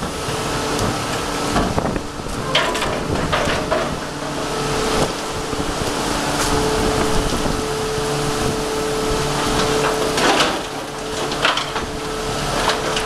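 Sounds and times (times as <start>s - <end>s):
boat engine running: 0.0s - 13.0s
hydraulic pot hauler running: 0.0s - 13.0s
wind: 0.0s - 13.0s.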